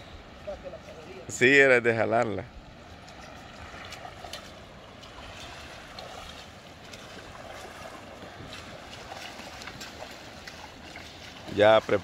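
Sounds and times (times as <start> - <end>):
shallow sea water washing: 2.5 - 12.0.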